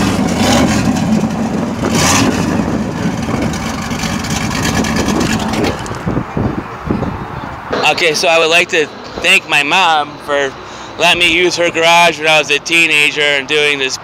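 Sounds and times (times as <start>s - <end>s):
car engine idling loud: 0.0s - 6.2s.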